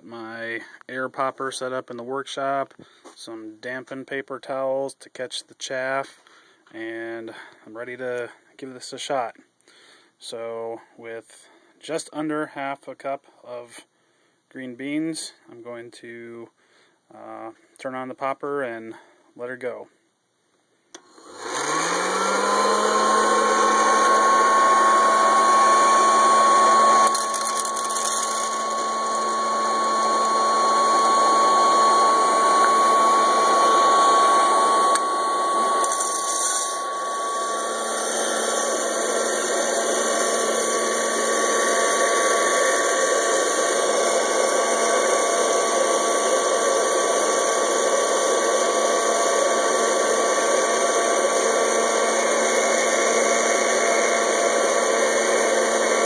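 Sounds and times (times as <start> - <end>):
popcorn popper fan whine: 20.9 - 56.0.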